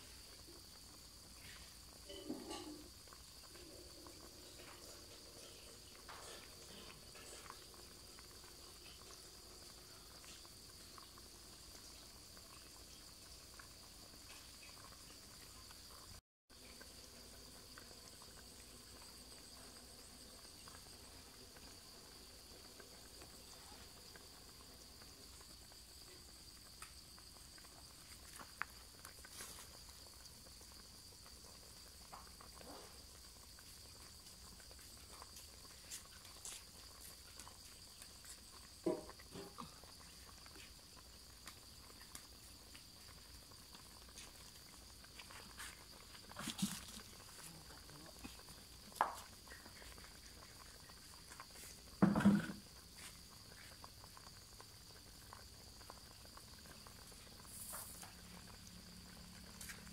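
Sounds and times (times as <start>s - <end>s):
crickets trilling: 0.0s - 59.9s.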